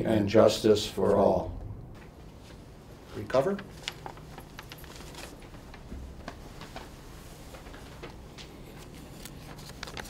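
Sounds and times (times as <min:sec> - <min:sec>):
low hum: 0:01.2 - 0:03.0
papers rustling: 0:02.4 - 0:10.0.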